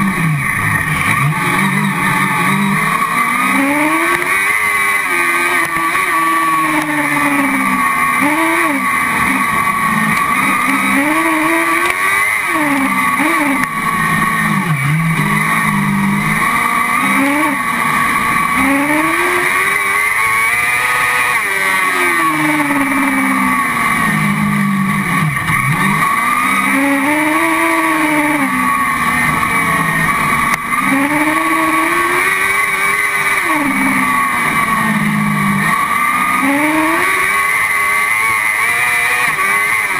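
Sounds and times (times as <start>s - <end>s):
car engine revving: 0.0s - 39.9s.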